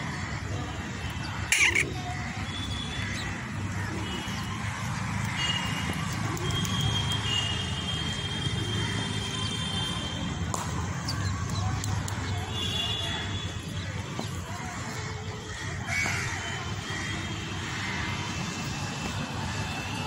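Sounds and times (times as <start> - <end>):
crow calling: 0.0 - 5.8, 12.6 - 18.2.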